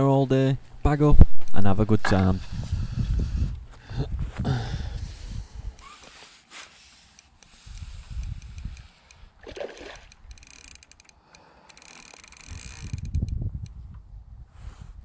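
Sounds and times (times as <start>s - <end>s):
wind buffeting microphone: 1.1s - 5.8s, 7.6s - 10.4s, 12.4s - 15.0s
small splash on water: 9.4s - 10.1s.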